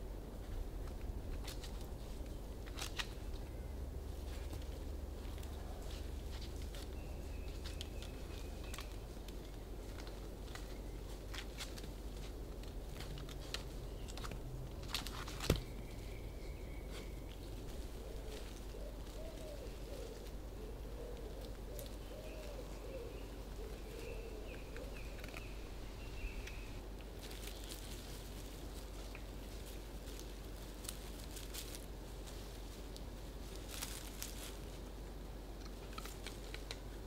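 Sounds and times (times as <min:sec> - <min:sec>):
sharp clicks and rustles: 0:06.3 - 0:15.8, 0:24.5 - 0:25.6, 0:35.6 - 0:37.0
faint low animal calls: 0:15.6 - 0:26.8.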